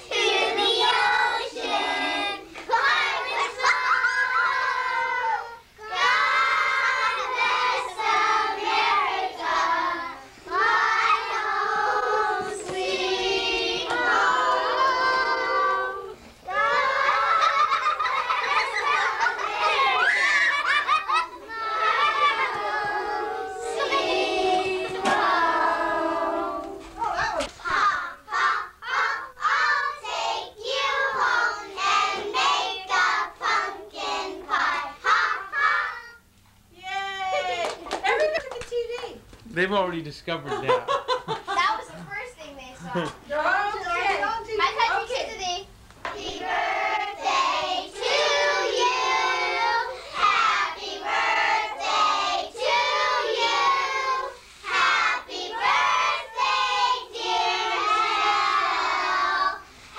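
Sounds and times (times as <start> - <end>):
girls singing: 0.0 - 36.2, 46.0 - 59.8.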